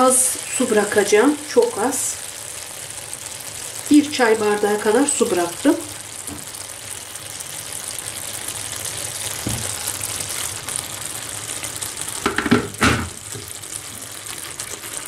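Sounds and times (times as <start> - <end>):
meat and cabbage sizzling in a pan: 0.0 - 15.0
wooden spoon knocking on pan: 6.2 - 6.6, 9.4 - 9.8, 12.2 - 13.5.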